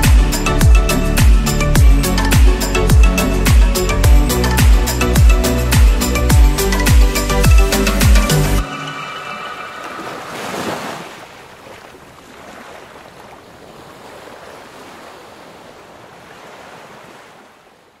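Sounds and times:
wave washing in: 8.0 - 17.8.

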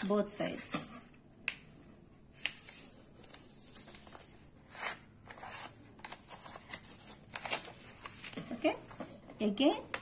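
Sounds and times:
paper rustling: 2.4 - 9.2.

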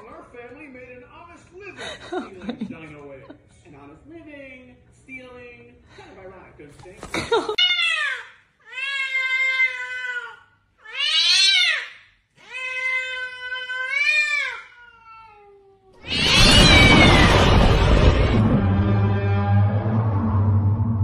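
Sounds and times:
cat meowing: 7.6 - 11.9, 12.5 - 17.7.

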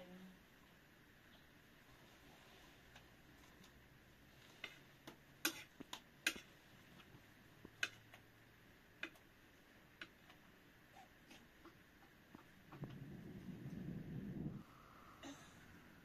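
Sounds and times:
spoon scraping a plate: 5.4 - 6.5.

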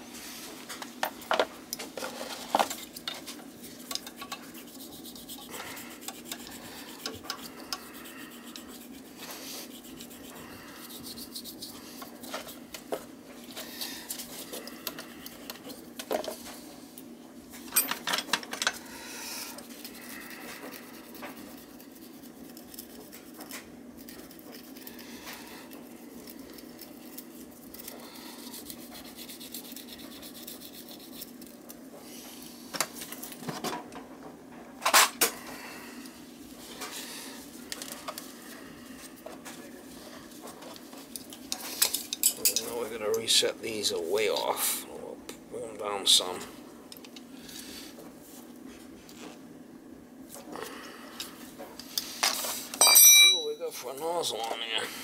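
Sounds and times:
steady low hum: 0.0 - 55.0
sharp metal clanks: 52.8 - 53.6
metal hand tools clinking and scraping: 52.8 - 53.8.

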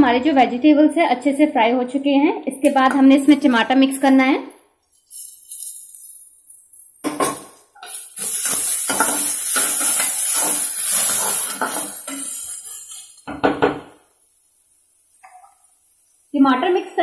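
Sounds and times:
hot oil sizzling: 4.9 - 17.0
metal spoon scraping a pan: 7.1 - 13.3.

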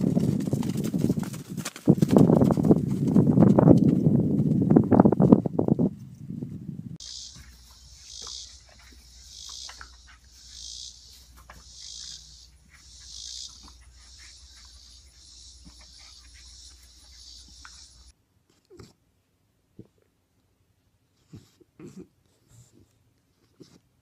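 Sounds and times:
insect chorus buzzing: 7.0 - 18.1.

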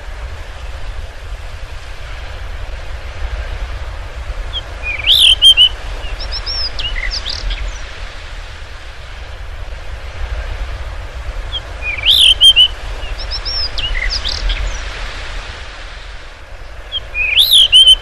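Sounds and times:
bird chirping and twittering: 4.5 - 8.0, 11.5 - 14.9, 16.5 - 18.0.

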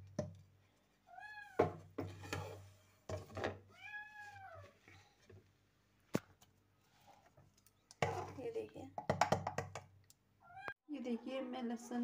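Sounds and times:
cat meowing: 3.7 - 4.7, 10.4 - 10.8.

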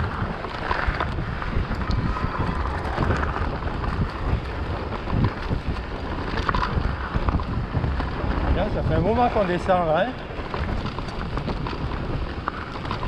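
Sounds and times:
bike knocking and rattling: 0.0 - 13.0
tyres running over dirt trail: 0.0 - 13.0
wind buffeting microphone: 0.0 - 13.0.

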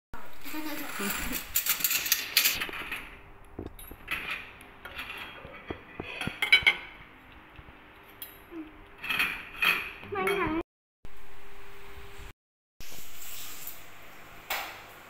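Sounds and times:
cutlery clinking on plates: 3.8 - 7.0.

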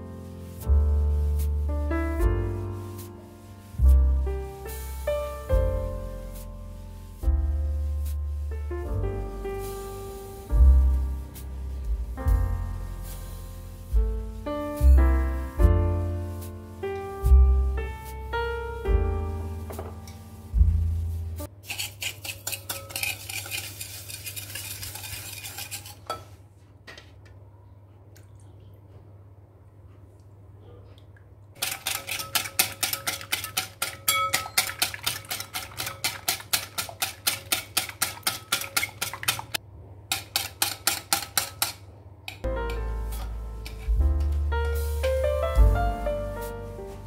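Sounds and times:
whisk clicking against a bowl: 21.7 - 26.2, 31.6 - 42.5.

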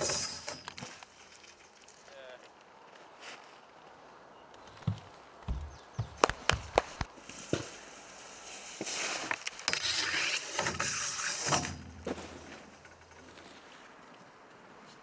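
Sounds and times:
skis scraping on metal rail: 0.0 - 1.7, 7.2 - 13.9.

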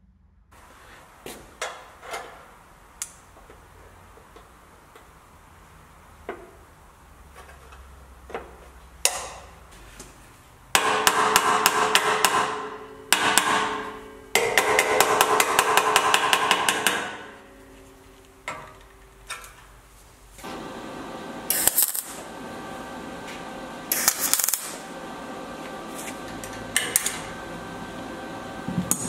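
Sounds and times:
hammer striking sheet metal: 10.7 - 17.6.

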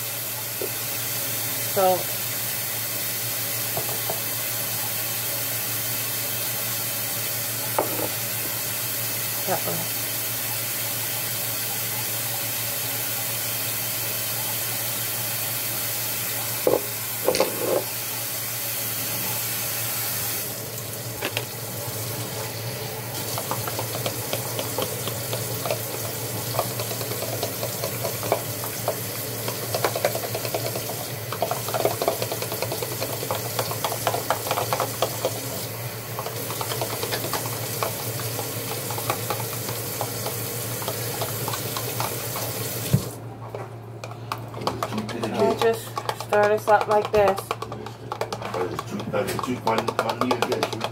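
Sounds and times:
tap running into sink: 3.7 - 4.3, 7.8 - 8.6, 16.6 - 17.9, 21.2 - 21.5, 23.2 - 43.2, 45.3 - 50.9
fork clicking on plastic container: 44.0 - 50.9.

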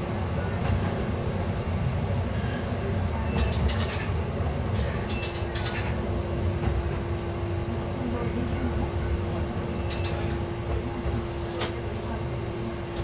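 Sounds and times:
railcar engine and wheels rumbling: 0.0 - 13.0.

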